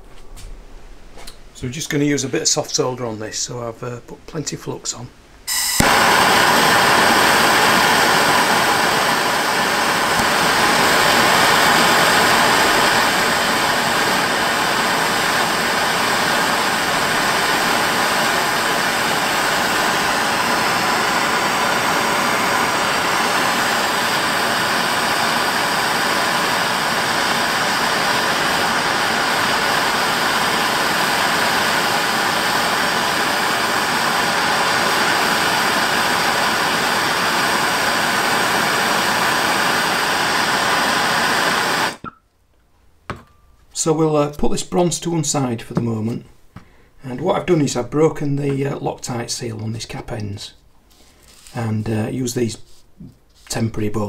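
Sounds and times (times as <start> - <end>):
blowtorch hissing: 5.5 - 42.1.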